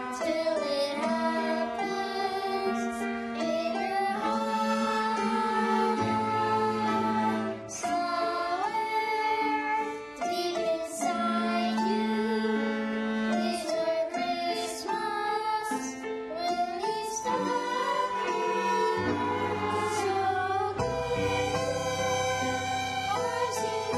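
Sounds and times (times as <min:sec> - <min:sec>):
bowed string melody: 0:00.0 - 0:23.9
piano accompaniment: 0:00.0 - 0:23.9
held bass notes: 0:18.3 - 0:23.9.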